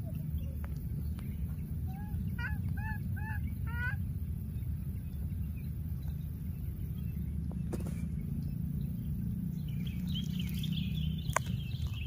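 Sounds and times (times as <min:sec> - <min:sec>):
low background rumble: 0:00.0 - 0:12.0
baby monkey high calls: 0:01.8 - 0:04.0.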